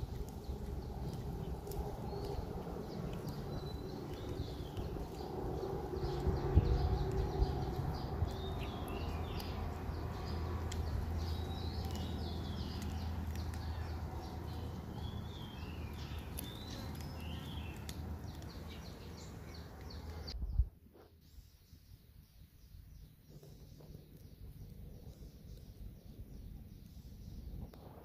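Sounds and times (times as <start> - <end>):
cat chewing and lapping: 0.0 - 20.3
birds chirping: 0.0 - 20.6, 21.3 - 28.0.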